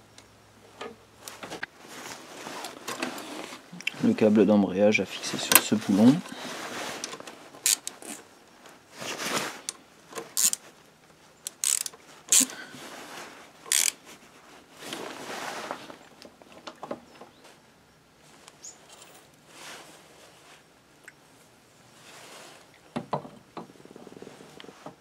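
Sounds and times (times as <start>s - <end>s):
ratchet wrench clicking: 7.6s - 8.2s, 10.4s - 10.6s, 11.4s - 12.5s, 13.7s - 14.0s.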